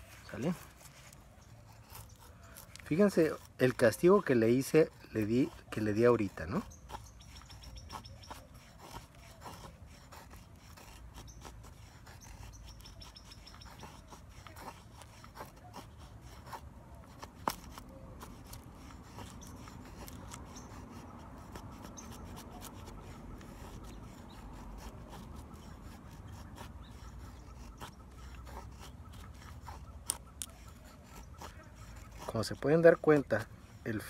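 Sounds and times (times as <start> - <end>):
knife scraping wood: 0.0 - 34.0.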